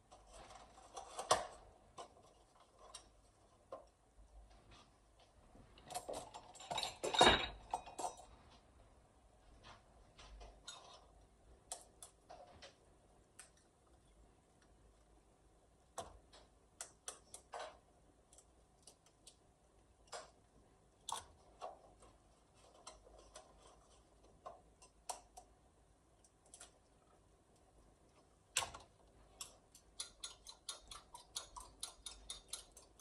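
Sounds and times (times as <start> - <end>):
fork clinking against bowl: 30.0 - 32.9.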